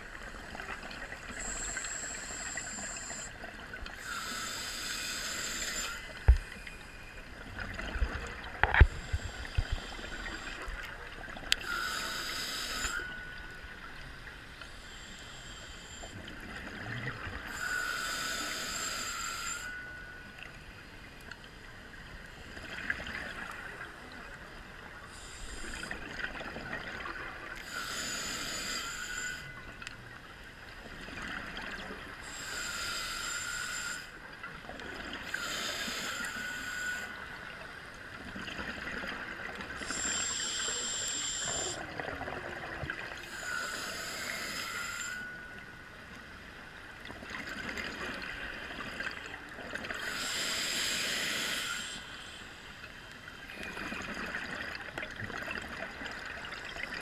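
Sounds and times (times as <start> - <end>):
diver inhaling through regulator: 1.2 - 3.4, 4.0 - 6.6, 11.6 - 13.4, 17.5 - 20.0, 27.6 - 29.6, 32.2 - 34.1, 35.2 - 37.2, 39.8 - 42.0, 43.3 - 45.6, 50.0 - 52.8.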